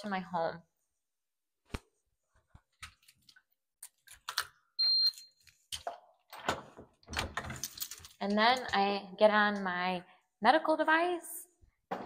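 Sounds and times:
keypad lock beep: 4.8 - 5.3
door handling clicks and knocks: 6.4 - 7.6.

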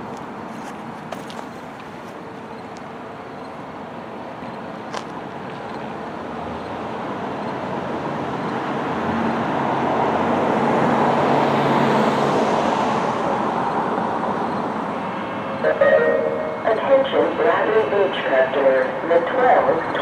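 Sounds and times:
vehicle passing: 6.3 - 20.0.

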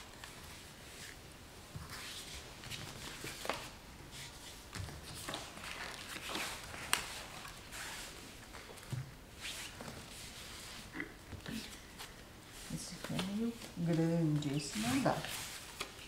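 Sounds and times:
paper rustling and scraping: 1.8 - 8.7, 14.7 - 16.0.

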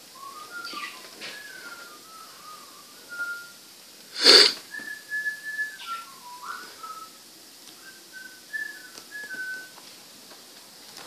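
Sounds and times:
person whistling a slow tune: 0.1 - 3.6, 4.2 - 7.2, 7.8 - 9.8.

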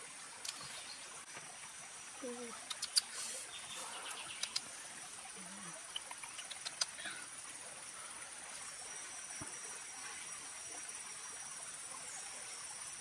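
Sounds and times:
crickets chirring: 0.3 - 13.0
sharp clicks and pops: 0.4 - 0.7, 2.6 - 3.1, 4.3 - 4.7, 5.9 - 7.0.

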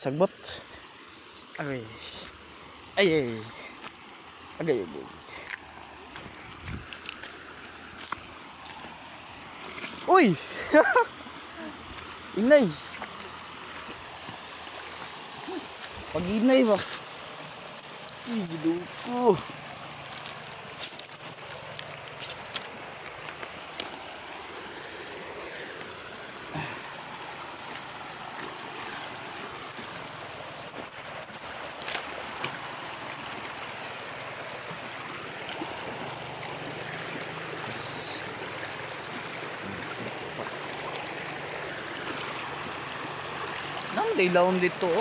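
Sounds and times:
stream flowing over rocks: 0.0 - 45.0.

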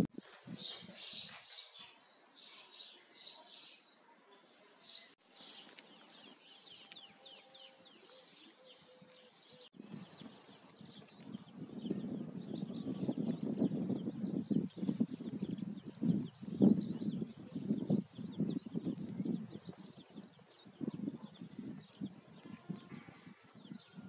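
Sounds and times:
small birds chirping: 0.2 - 24.0.

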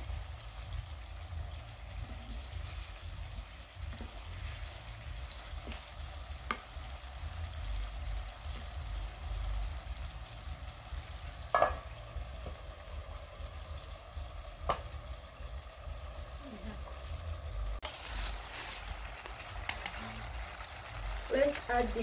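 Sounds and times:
vegetables sizzling in a pan: 0.0 - 22.0
metal lid clanking on pan: 11.5 - 11.8
wooden spatula scraping a pan: 17.8 - 18.9.

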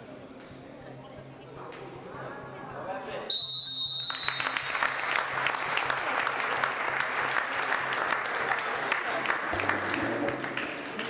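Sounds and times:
crowd applauding: 4.0 - 11.0.

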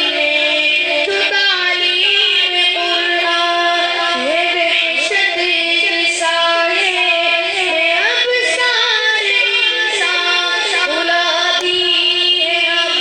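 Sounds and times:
steady held drone note: 0.0 - 6.0.

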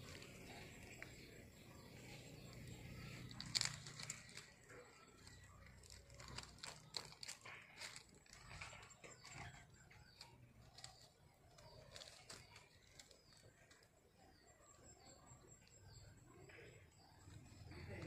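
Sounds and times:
dry palm fronds crackling: 0.0 - 14.0
faint bird chirps: 0.0 - 18.0.

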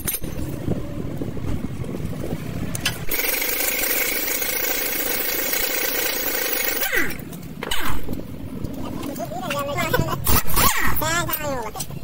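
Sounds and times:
vehicle engine low rumble: 0.0 - 3.2, 7.2 - 10.3.

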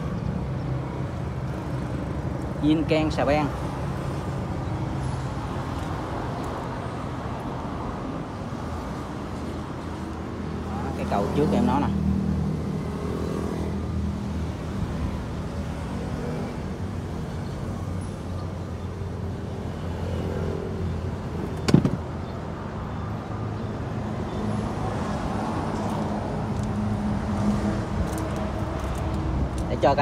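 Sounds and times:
sharp knock: 21.6 - 22.0.

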